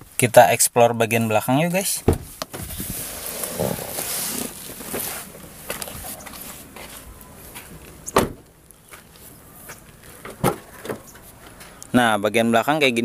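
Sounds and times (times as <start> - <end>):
car door shutting: 2.0 - 2.8, 8.0 - 8.5.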